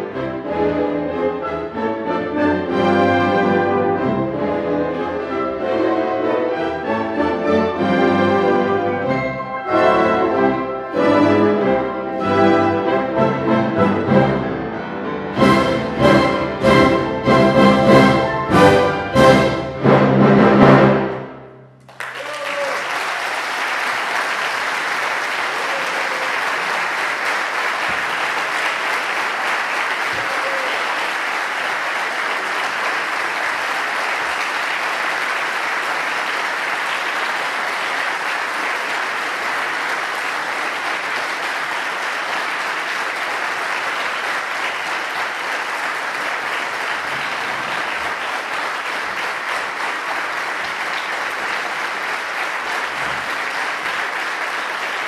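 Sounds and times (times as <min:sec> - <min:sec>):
audience applause: 0:21.8 - 0:55.0.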